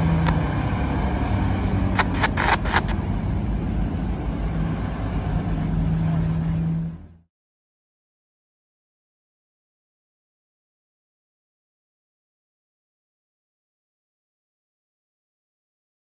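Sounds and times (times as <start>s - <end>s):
fire engine diesel rumble: 0.0s - 7.3s
pickup truck driving past: 0.0s - 7.3s
short sharp clicks: 1.9s - 3.0s.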